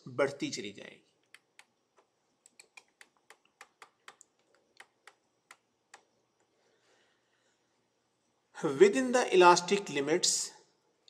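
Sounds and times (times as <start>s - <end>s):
computer keys clicking: 1.2s - 6.1s.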